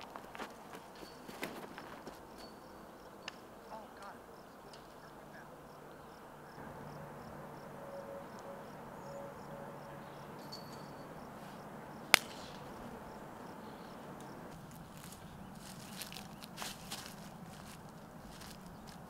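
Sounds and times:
sharp snap: 12.1 - 12.7.

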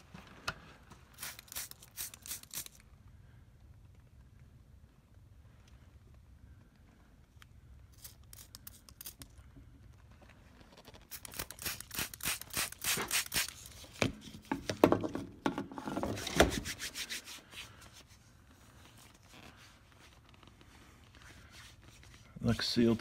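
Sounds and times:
spray bottle spritzing: 1.1 - 2.8, 11.1 - 13.7
hands rubbing: 16.5 - 22.2.

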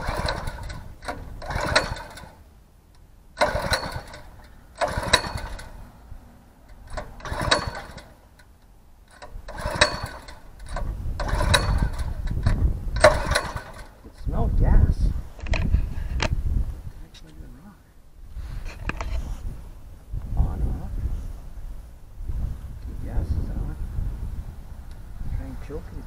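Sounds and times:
engine cranking by pull cord: 0.0 - 6.0, 6.6 - 14.6.

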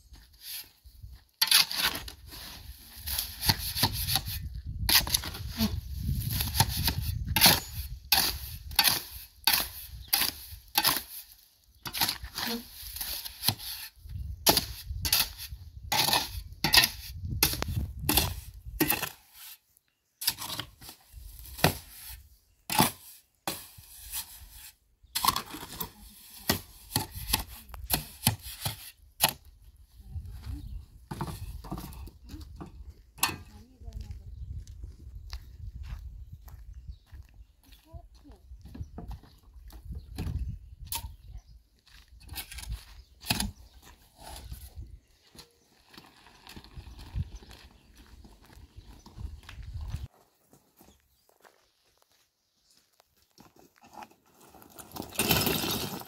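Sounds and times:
shovel scraping through cement mix: 0.2 - 29.4, 42.2 - 44.9, 53.8 - 56.0.

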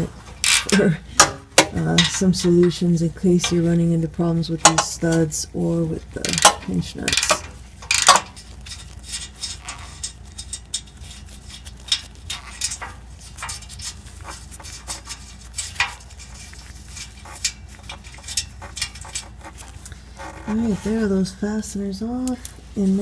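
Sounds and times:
metallic clicks and scrapes of nuts: 0.0 - 2.8, 6.2 - 20.8
metal ticks: 6.2 - 8.4.

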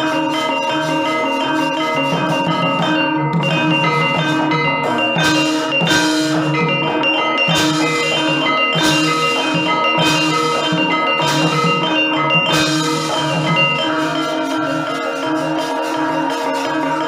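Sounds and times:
gamelan music: 0.0 - 17.0.

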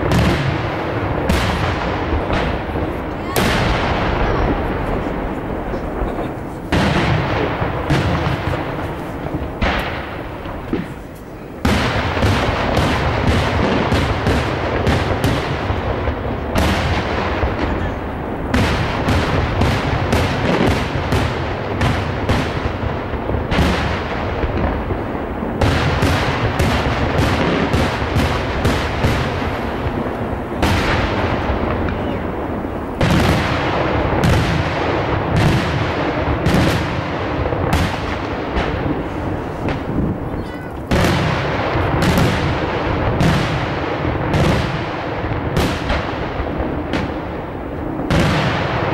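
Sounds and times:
low rolling rumble: 0.6 - 12.8.

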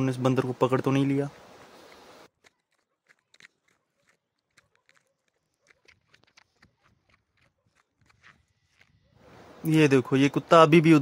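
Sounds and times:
footsteps on stony ground: 0.8 - 9.6.

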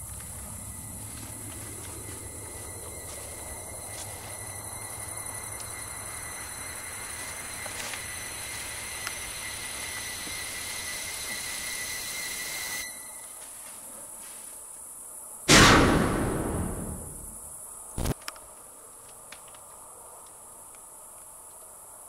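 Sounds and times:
low hum: 0.0 - 10.0, 15.5 - 17.6
crickets chirring: 0.0 - 22.0
hiss: 4.1 - 13.2.

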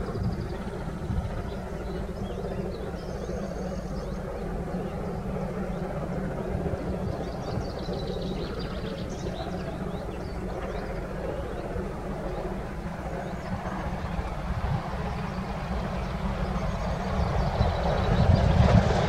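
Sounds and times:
birds chirping: 0.0 - 19.0
steady low rumble: 0.0 - 19.0.

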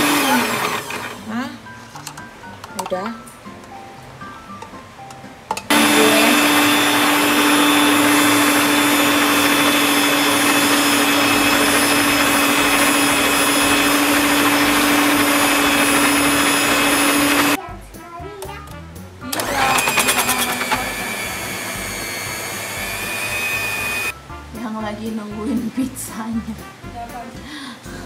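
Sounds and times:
electric hand mixer motor: 0.0 - 1.4, 5.7 - 17.6, 19.3 - 24.1.

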